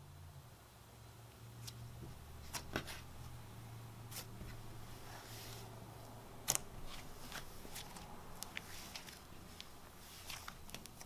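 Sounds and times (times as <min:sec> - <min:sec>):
low steady hum: 0:00.0 - 0:11.0
slime clicks and crackles: 0:06.4 - 0:06.7.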